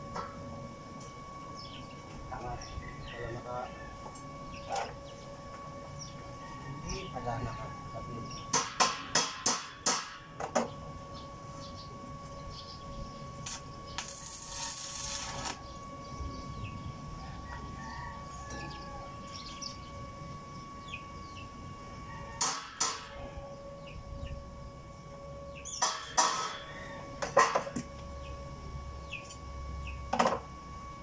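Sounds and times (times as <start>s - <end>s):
steady high whine: 0.0s - 31.0s
crackling welding arc hiss: 13.3s - 15.7s.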